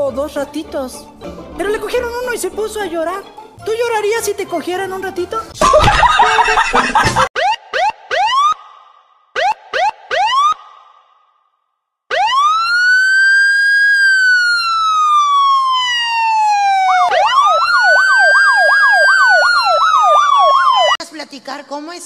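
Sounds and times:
electronic siren wailing and yelping: 7.4 - 8.8, 9.4 - 10.9, 12.1 - 21.0.

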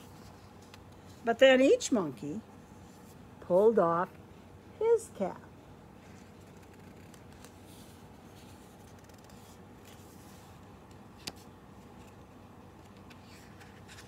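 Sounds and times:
low room hum: 0.0 - 14.0
paper page rustling: 6.0 - 14.0.

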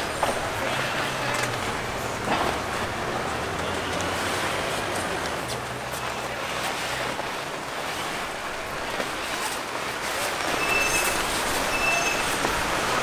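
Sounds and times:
short high rubber squeaks: 10.4 - 12.5.

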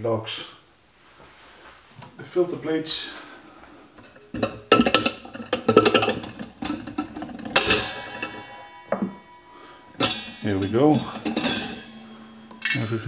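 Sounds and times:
metal tool scraping steel pipe: 4.0 - 13.0
sharp snap with metallic ringing: 7.6 - 13.0.

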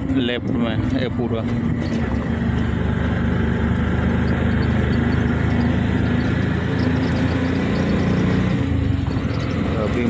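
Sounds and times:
road noise: 0.0 - 10.0
small engine running: 0.0 - 10.0.

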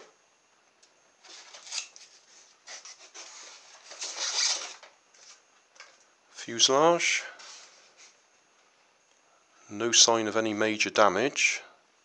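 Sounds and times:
plastic scraping against polystyrene: 1.2 - 5.4.

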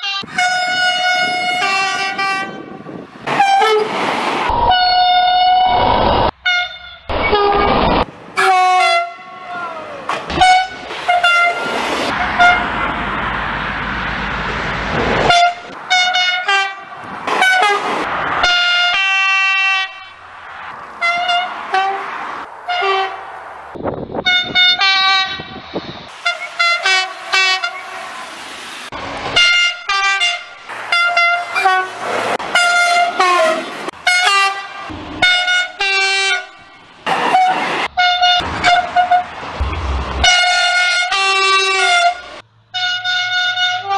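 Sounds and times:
train horn blasts: 0.0 - 4.0, 6.4 - 7.6, 8.4 - 9.5, 10.3 - 12.7, 15.3 - 17.9, 21.0 - 22.1, 22.7 - 23.2, 24.2 - 28.1, 29.4 - 36.6, 37.3 - 43.9
passing train rumble and rail noise: 0.0 - 43.9.

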